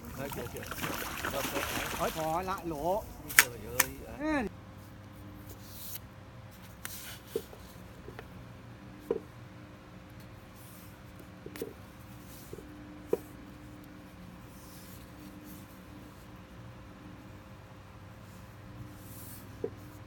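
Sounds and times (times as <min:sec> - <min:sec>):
paper rustling: 0:01.2 - 0:04.0.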